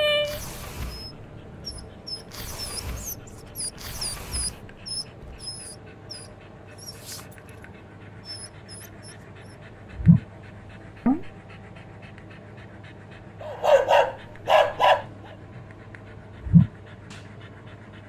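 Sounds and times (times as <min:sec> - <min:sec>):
dog sniffing: 0:00.0 - 0:09.6, 0:13.4 - 0:15.3
dog panting: 0:00.0 - 0:18.0.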